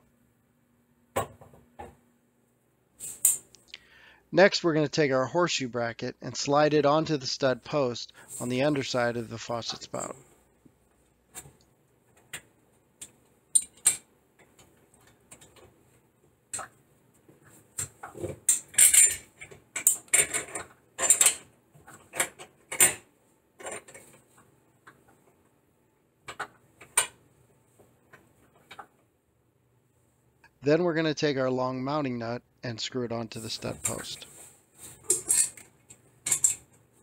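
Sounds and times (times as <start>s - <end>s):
metal clinks and scrapes: 18.5s - 19.4s, 33.8s - 36.7s.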